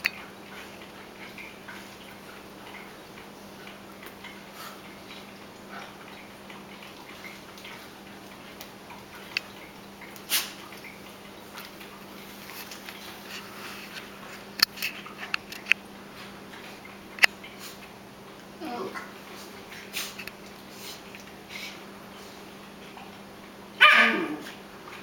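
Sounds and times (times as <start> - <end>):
dogs scuffling on wooden floor: 11.5 - 15.4.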